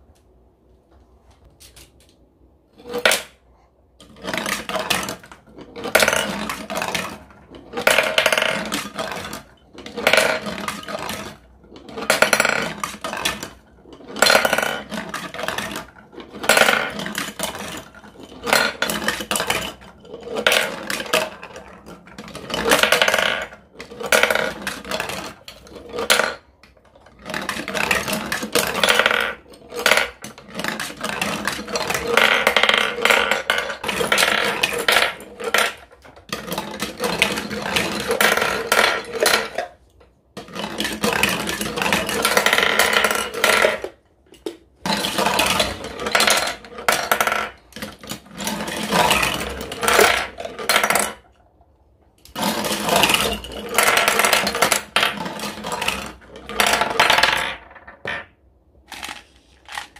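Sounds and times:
marbles rolling down plastic chutes: 4.0s - 51.6s, 52.2s - 59.9s
marbles knocking in tray: 4.2s - 17.8s, 22.3s - 25.3s, 40.4s - 51.3s.

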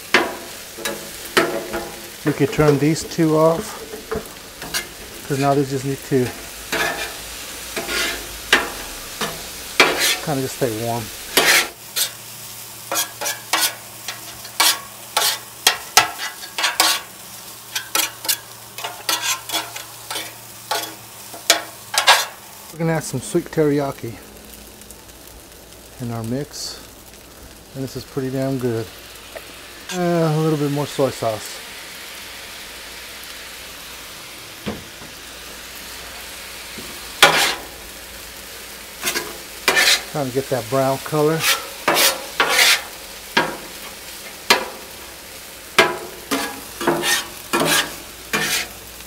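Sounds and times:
rice sizzling on a griddle: 0.0s - 49.0s
metal spatula scraping steel: 0.1s - 10.4s, 11.3s - 12.2s, 12.9s - 17.1s, 17.7s - 22.4s, 37.2s - 37.7s, 39.0s - 40.2s, 41.1s - 44.7s, 45.8s - 48.8s.

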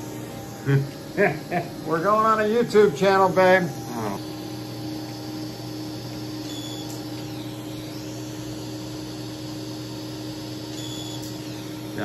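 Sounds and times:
suction machine humming: 0.0s - 12.0s.

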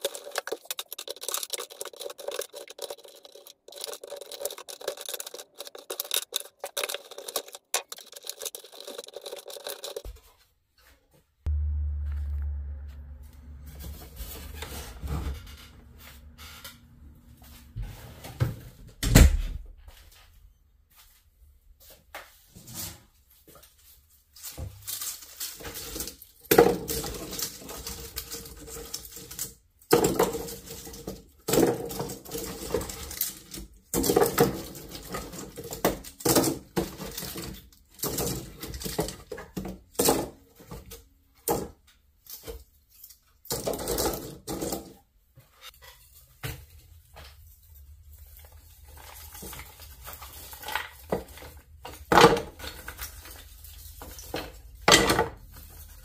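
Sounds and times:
hard objects clattering: 0.0s - 10.2s, 24.4s - 41.8s.

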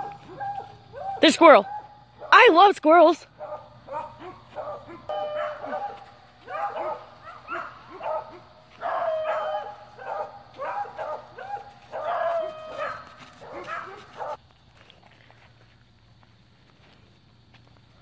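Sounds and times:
dog barking and yipping: 0.0s - 2.5s, 3.3s - 14.4s.

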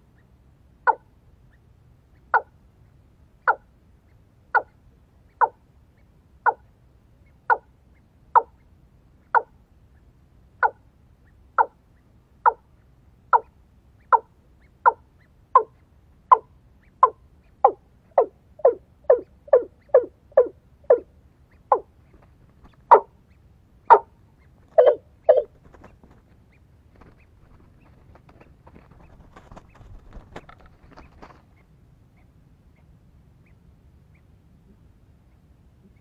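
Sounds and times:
watercock calls: 16.3s - 21.9s, 22.8s - 23.2s, 23.9s - 25.5s.

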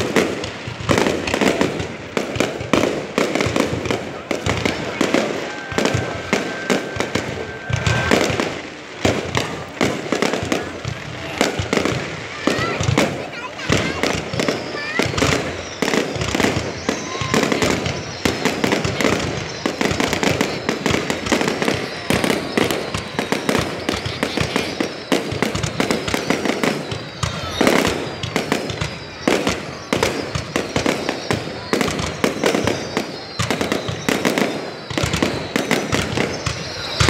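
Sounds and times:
fireworks bursting and crackling: 0.0s - 37.0s
loud firework bang: 0.0s - 37.0s.

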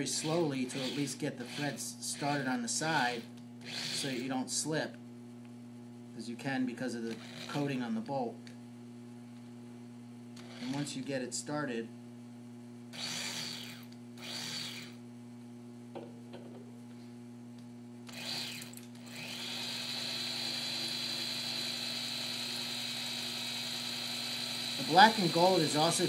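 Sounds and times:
electric drill whining into steel: 0.0s - 2.4s, 3.0s - 4.3s, 7.1s - 7.6s, 10.4s - 10.8s, 13.0s - 15.0s, 18.1s - 26.0s.

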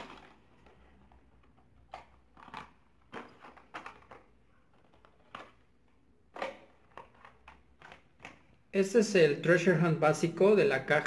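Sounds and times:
plastic blister packs crinkling: 0.0s - 8.6s.

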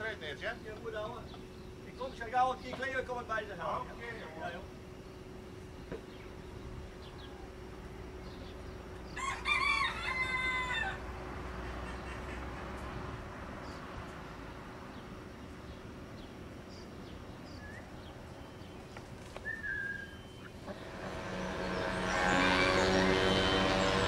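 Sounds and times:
engine humming: 0.0s - 24.0s
bird chirps: 1.0s - 3.0s, 5.0s - 9.3s, 14.9s - 23.1s.

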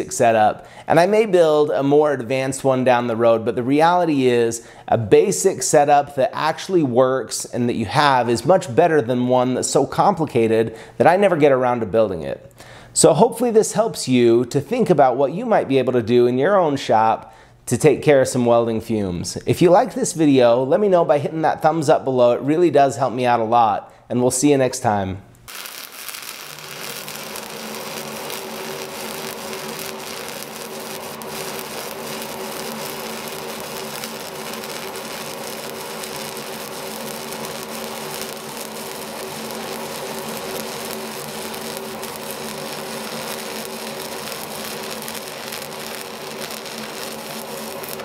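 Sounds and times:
extractor fan humming: 25.4s - 48.0s
welding arc crackling: 25.5s - 48.0s.

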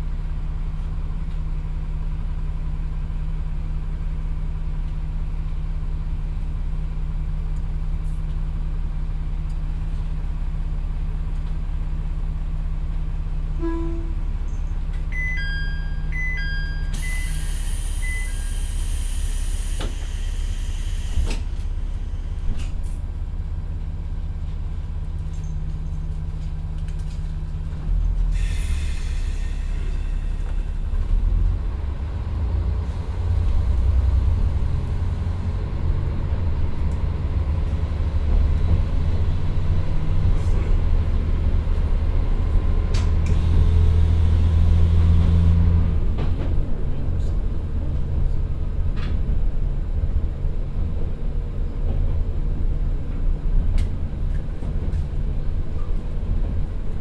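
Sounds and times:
diesel engine idling and revving: 14.2s - 57.0s
electronic chime beeps: 15.1s - 17.4s
compressed air hiss: 17.0s - 21.6s.

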